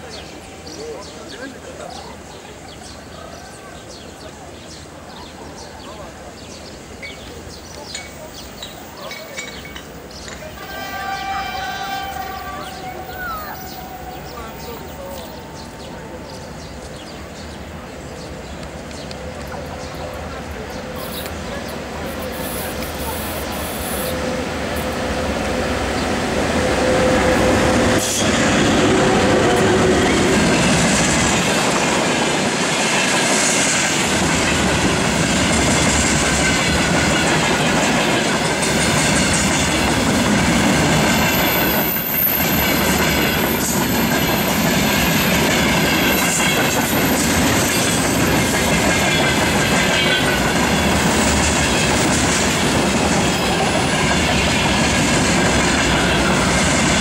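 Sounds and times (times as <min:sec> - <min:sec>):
electric locomotive passing: 0:00.0 - 0:57.0
train wheels clattering on rails: 0:07.0 - 0:57.0.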